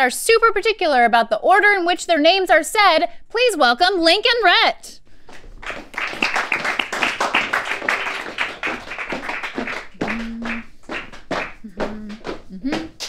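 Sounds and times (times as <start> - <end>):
small group clapping: 5.3 - 13.0
voice holding a note: 10.0 - 10.7, 11.6 - 13.0.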